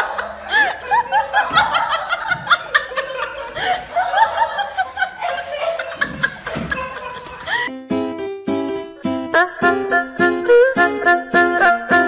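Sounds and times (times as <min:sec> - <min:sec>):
people chuckling and snickering: 0:00.0 - 0:07.7.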